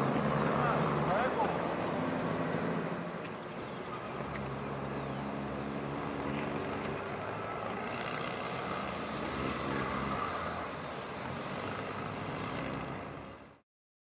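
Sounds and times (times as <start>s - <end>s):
distant road traffic: 0.0s - 13.6s.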